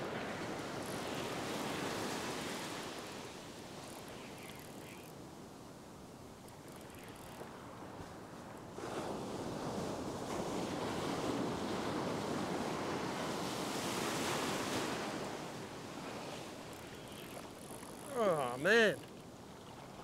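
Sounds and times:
ocean surf breaking: 8.8s - 19.2s.

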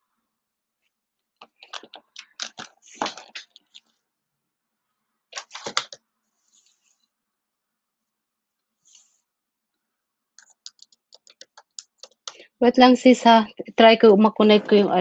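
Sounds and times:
handling clicks and knocks: 1.4s - 3.9s.

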